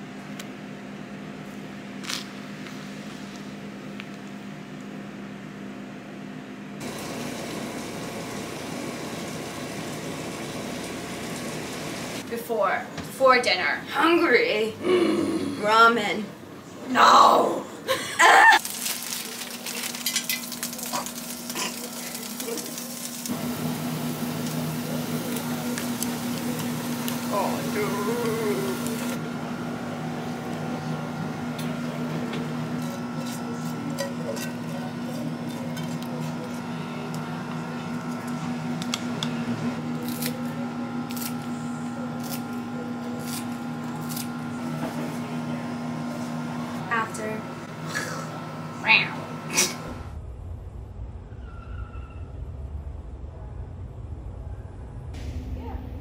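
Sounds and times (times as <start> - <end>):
vegetables sizzling in frying pan: 6.8 - 12.2, 18.6 - 29.2
lower hum: 23.2 - 56.0
steady low hum: 23.2 - 56.0
spatula stirring: 32.7 - 36.7
scissors snipping green onion: 40.0 - 40.4.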